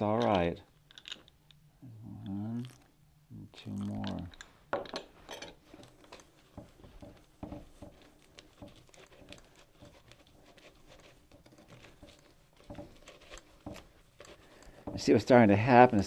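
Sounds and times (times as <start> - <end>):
hands working pastry dough: 3.6 - 16.0.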